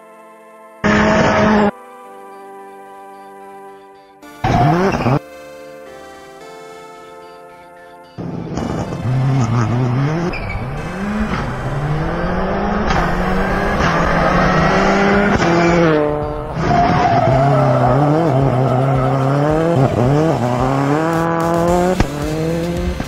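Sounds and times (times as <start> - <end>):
rally car engine revving: 0.8 - 1.7, 4.4 - 5.2, 8.2 - 23.0
tyres squealing and skidding: 4.4 - 5.2, 8.6 - 21.3.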